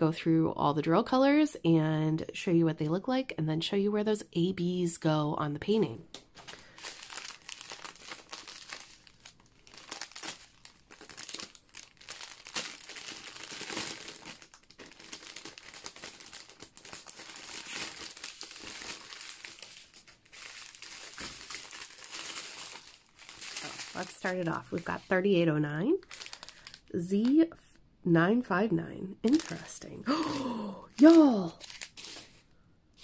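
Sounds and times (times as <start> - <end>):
plastic bags crinkling: 6.1 - 27.4, 29.3 - 32.5.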